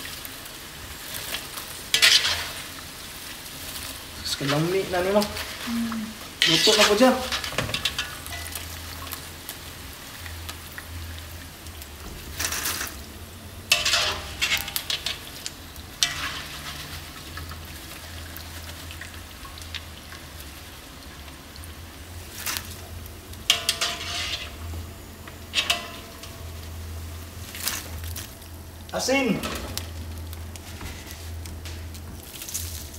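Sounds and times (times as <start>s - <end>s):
food sizzling in hot oil: 0.0s - 32.9s
wire strainer scraping and rattling: 1.2s - 2.8s, 6.4s - 9.2s, 12.2s - 13.1s, 13.7s - 18.8s, 23.5s - 26.7s, 27.4s - 28.4s.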